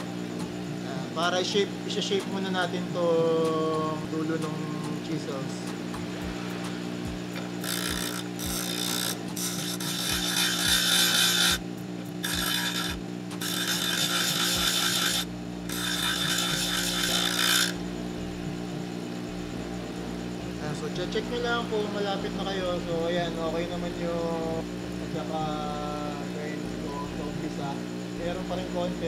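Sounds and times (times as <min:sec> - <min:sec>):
bench grinder motor hum: 0:05.3 - 0:18.2
chisel grinding on wheel: 0:07.4 - 0:17.8.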